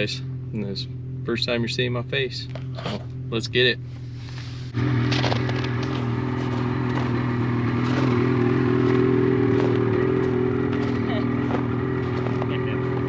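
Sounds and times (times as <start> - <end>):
snowmobile engine idling: 0.0 - 13.0
clattering and scraping: 3.9 - 7.2.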